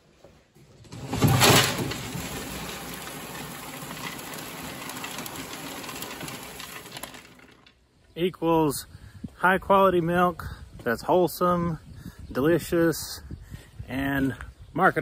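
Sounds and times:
grain pouring into metal bowl: 1.7 - 7.1.

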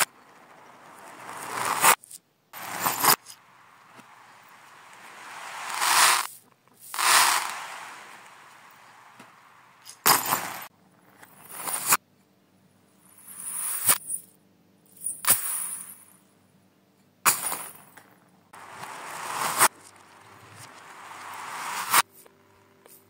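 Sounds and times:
reversed clatter of small objects: 0.0 - 12.0, 13.2 - 14.2, 15.1 - 16.1, 18.6 - 22.3.

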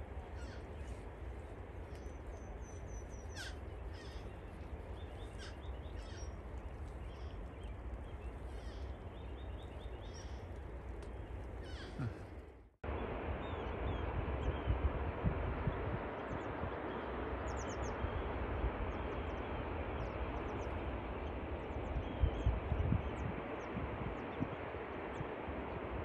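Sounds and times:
bird chirps and calls: 2.0 - 10.5, 11.6 - 12.2.

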